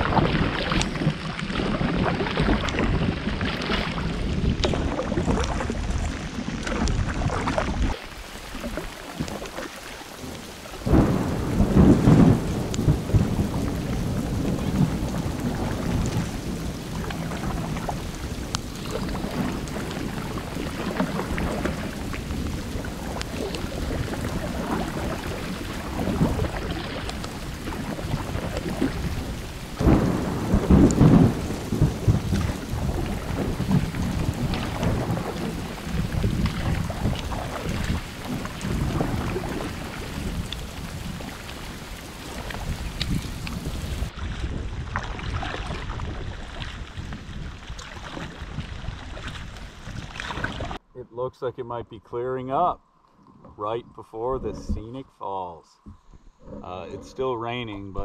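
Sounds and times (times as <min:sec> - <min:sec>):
thunder rumbling: 0:00.0 - 0:50.8
steady rain: 0:00.0 - 0:51.8.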